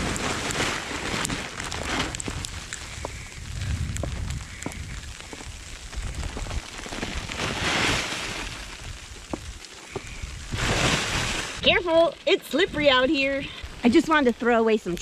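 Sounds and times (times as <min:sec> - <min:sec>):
footsteps crunching in snow: 0:00.0 - 0:12.1
wind buffeting microphone: 0:00.0 - 0:14.4
rustling: 0:00.0 - 0:14.5.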